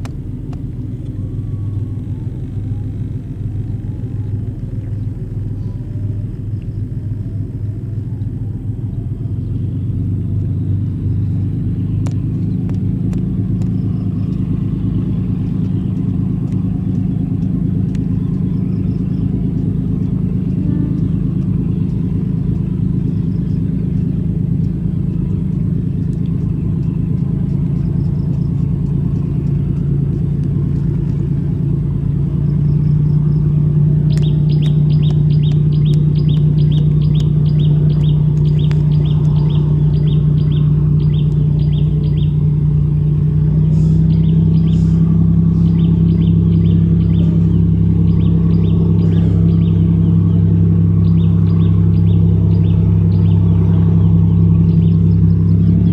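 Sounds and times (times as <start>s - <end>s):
ferry engines droning: 0.0s - 55.9s
bird chirping: 8.1s - 55.9s.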